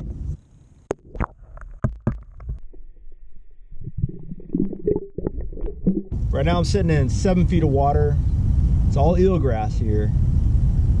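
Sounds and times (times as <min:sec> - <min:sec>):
low underwater rumble: 0:00.0 - 0:09.0
muffled underwater knocks and splashes: 0:00.9 - 0:02.7.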